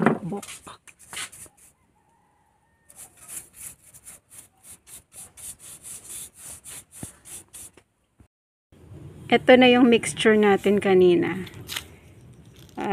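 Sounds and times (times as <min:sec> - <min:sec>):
paintbrush scrubbing rough wood: 0:02.9 - 0:07.7.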